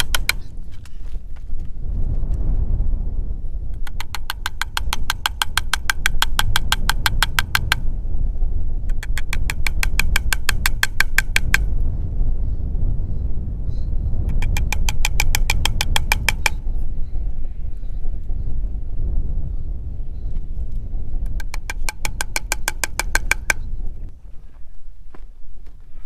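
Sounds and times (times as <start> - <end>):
rapid clicking: 0.0 - 0.5, 3.8 - 7.9, 8.9 - 11.7, 14.3 - 16.6, 21.3 - 23.6
low rumble: 0.0 - 26.0.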